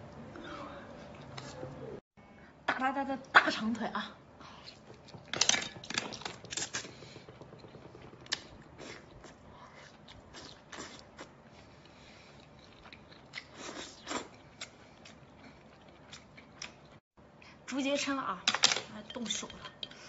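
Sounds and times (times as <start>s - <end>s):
person chewing: 5.8s - 17.0s.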